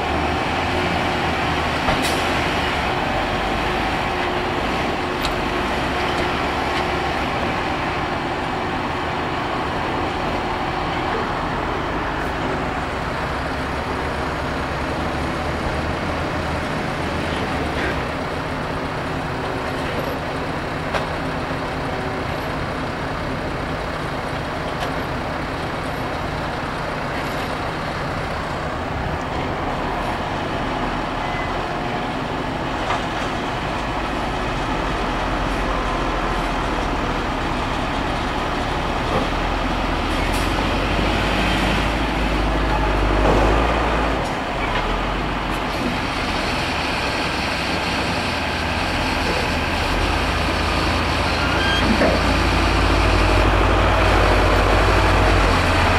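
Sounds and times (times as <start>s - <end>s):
diesel tractor engines: 0.0s - 55.9s
tractor engine revving: 32.2s - 55.9s.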